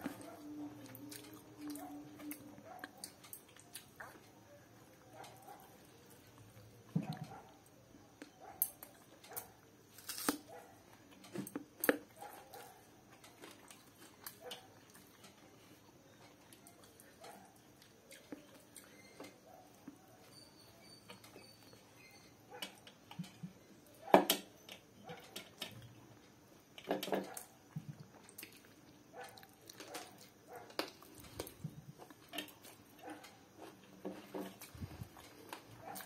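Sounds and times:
chewing clicks: 16.1s - 20.0s.

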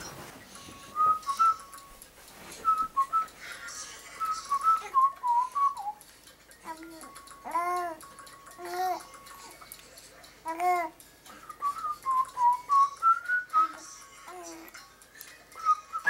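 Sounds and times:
person whistling short notes: 1.0s - 1.7s
baby cooing: 6.6s - 9.6s, 10.4s - 11.0s, 13.7s - 14.7s.

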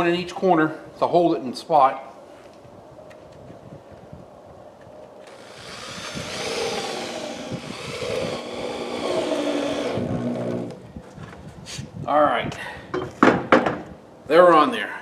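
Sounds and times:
electric drill driving screws: 5.3s - 10.8s.

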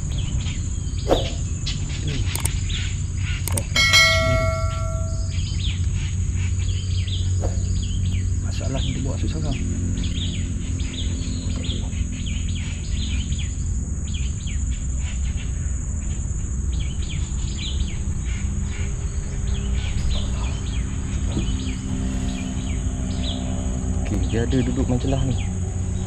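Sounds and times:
birds chirping: 0.1s - 5.8s, 6.5s - 26.0s.

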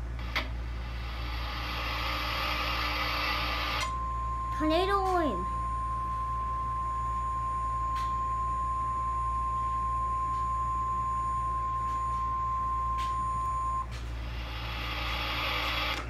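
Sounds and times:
steady high alert tone: 4.4s - 6.6s.

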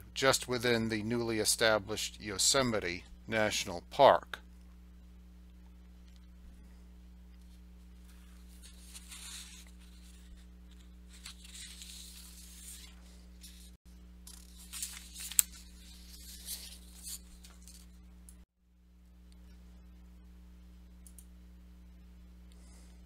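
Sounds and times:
low steady hum: 0.0s - 23.0s
faint rustling and handling: 7.3s - 18.0s.

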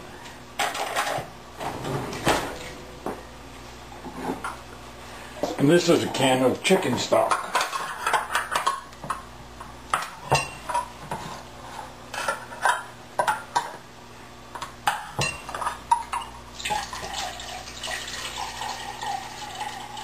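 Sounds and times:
liquid pouring: 16.6s - 20.0s.

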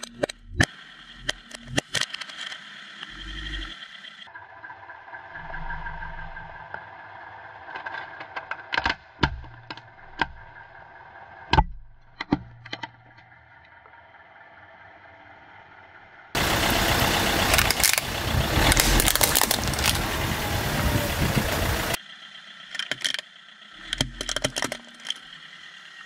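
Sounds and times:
car engine idling: 0.0s - 26.0s
plastic toy cracking under tyre: 17.5s - 20.2s, 22.7s - 25.2s.

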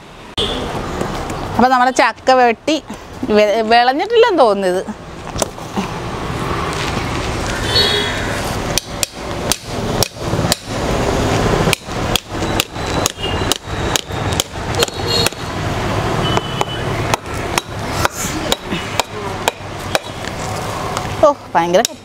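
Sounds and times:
knife hammering on knife: 8.7s - 10.7s, 11.7s - 15.4s, 17.1s - 20.2s.

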